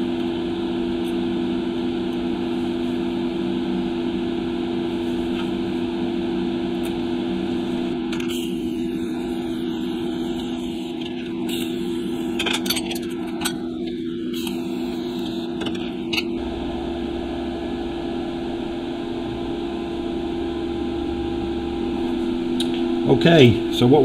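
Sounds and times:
workshop hum: 0.0 - 24.0
welding arc crackling: 6.6 - 24.0.

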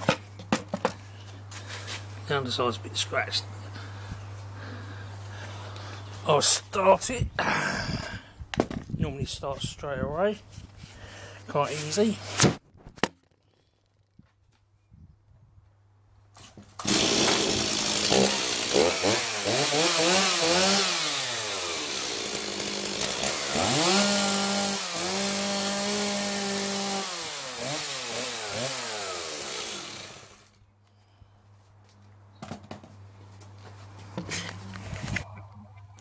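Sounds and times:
chainsaw revving: 16.8 - 30.6.

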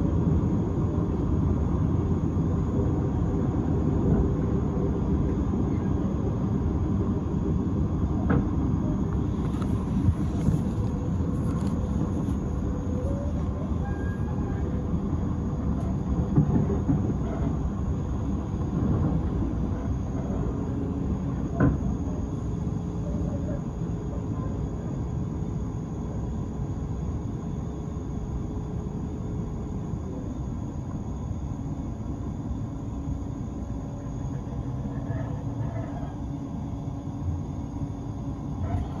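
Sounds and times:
faint steady whine: 0.0 - 39.0
train wheels rumbling on rails: 0.1 - 22.4.

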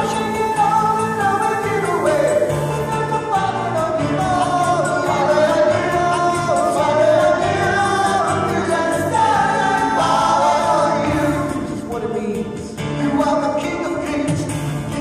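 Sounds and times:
song with singing voices: 0.0 - 15.0.

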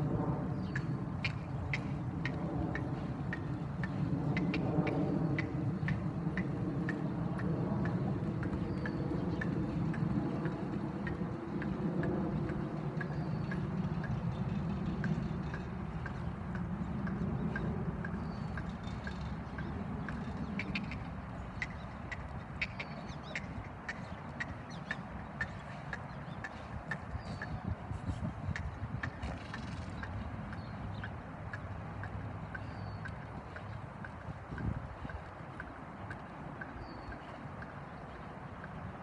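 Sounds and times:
horse hooves trotting on sand: 0.0 - 39.0.

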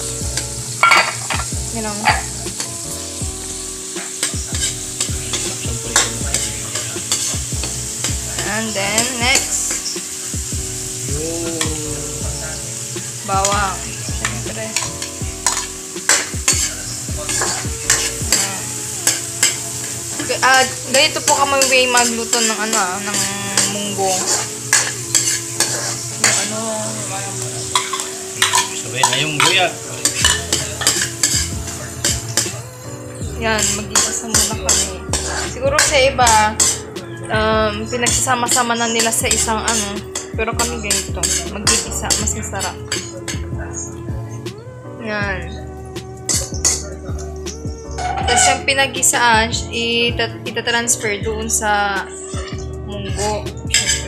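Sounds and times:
onions sizzling in hot oil: 0.0 - 44.2, 46.1 - 49.9, 50.6 - 54.0
metal ladle scraping a wok: 0.8 - 1.5, 14.8 - 16.7, 17.3 - 18.4, 19.0 - 26.5, 27.7 - 32.4, 33.6 - 35.9, 36.6 - 36.8, 40.9 - 43.2, 47.9 - 48.6, 53.7 - 54.0.

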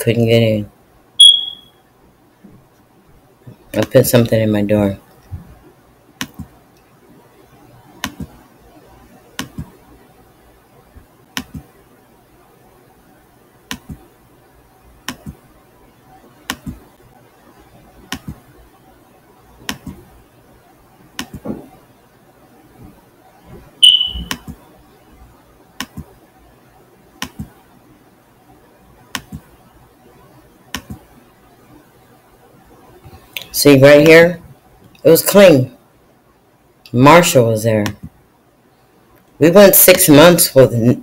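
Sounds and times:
faint steady hum: 0.0 - 41.0
brief high beep: 1.2 - 1.8, 23.8 - 24.4
mouse button clicking: 23.8 - 24.5.

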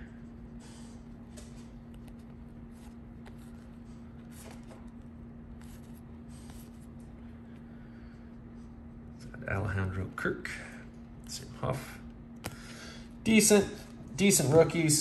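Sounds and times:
steady low hum: 0.0 - 15.0
cards sliding and flipping: 0.6 - 7.2.

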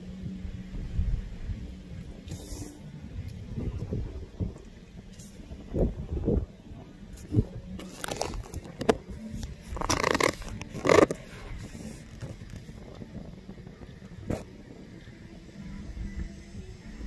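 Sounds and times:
low wind rumble: 0.0 - 17.0
phone handling scraping: 7.8 - 12.6.

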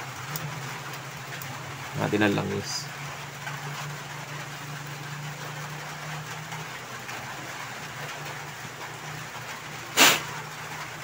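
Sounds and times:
even hiss: 9.9 - 10.4.

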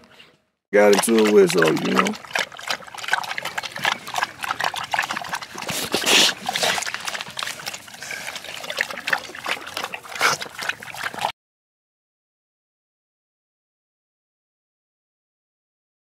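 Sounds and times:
dogs lapping water: 0.8 - 11.3.

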